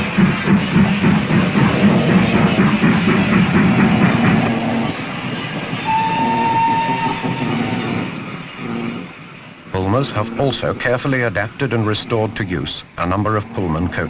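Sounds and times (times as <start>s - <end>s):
steam locomotive exhaust beat: 0.0s - 14.0s
steam whistle blast: 5.8s - 8.1s.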